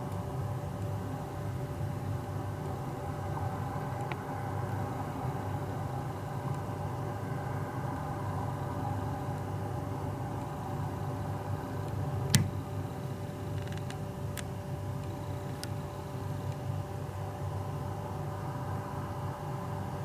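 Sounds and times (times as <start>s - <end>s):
sharp click: 12.3s - 12.6s.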